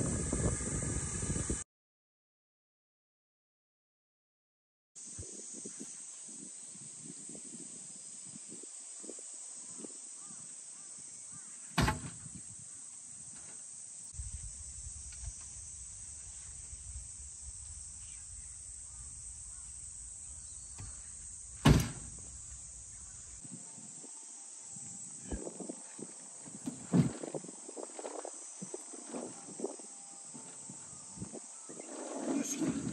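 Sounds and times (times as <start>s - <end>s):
steady high hiss: 5.0s - 32.9s
timber boards knocking on frame: 21.6s - 22.2s.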